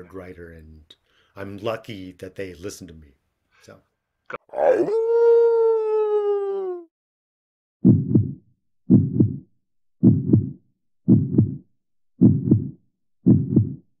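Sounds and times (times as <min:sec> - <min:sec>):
heartbeat double beats: 0:07.8 - 0:13.9.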